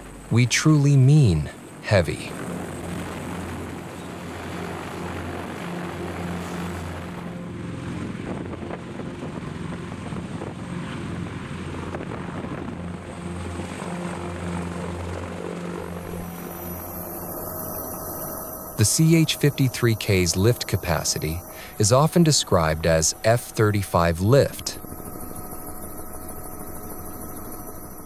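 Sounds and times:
helicopter hovering: 0.0 - 28.0.

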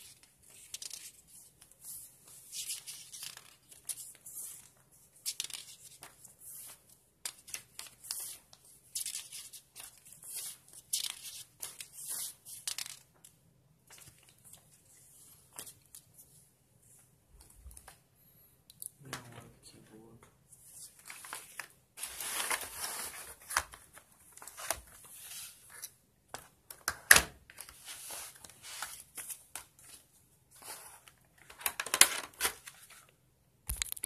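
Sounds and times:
paper pages rustling: 0.0 - 13.3, 20.6 - 26.9, 27.5 - 33.1.

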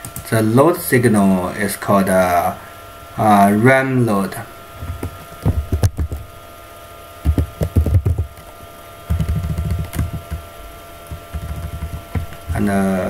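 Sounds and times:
faint electrical hum: 0.0 - 13.0
keyboard typing: 4.9 - 6.2, 7.2 - 8.5, 9.1 - 10.4, 11.1 - 12.7.

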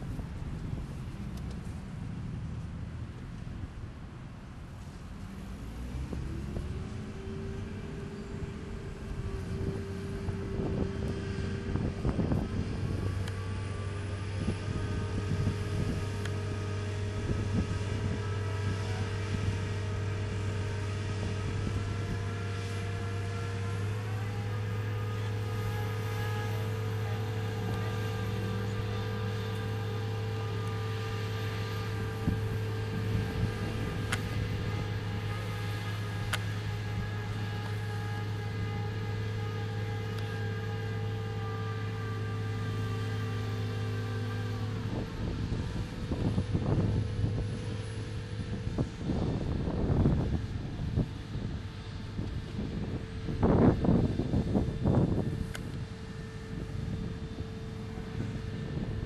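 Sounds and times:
crane diesel engine running: 0.0 - 59.0.

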